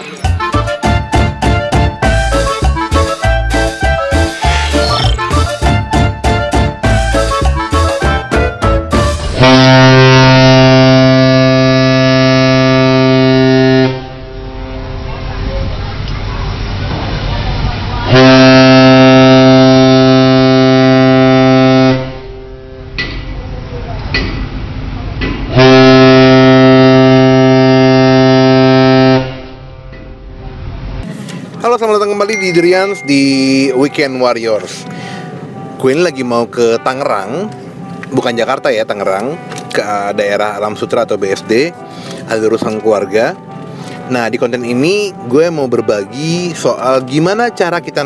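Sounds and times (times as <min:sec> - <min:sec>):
intro music: 0:00.0 - 0:48.0
ship's horn blast: 0:08.9 - 0:15.8, 0:17.8 - 0:23.0, 0:25.5 - 0:30.4.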